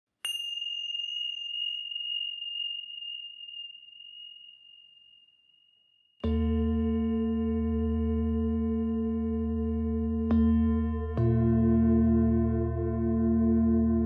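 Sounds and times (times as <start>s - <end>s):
small metal chime ringing: 0.1s - 6.2s.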